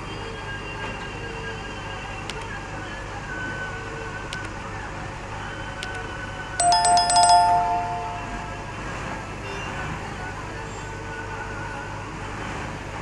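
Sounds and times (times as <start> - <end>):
notification bell ringing: 6.6 - 8.9.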